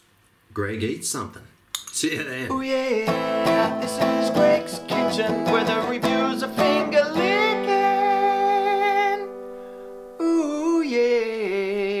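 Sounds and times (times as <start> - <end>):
held vocal notes: 2.4 - 12.0
strummed acoustic guitar: 2.6 - 10.1.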